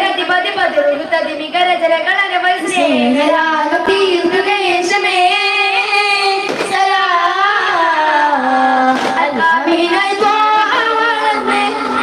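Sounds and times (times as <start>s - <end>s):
children singing together: 3.8s - 12.0s.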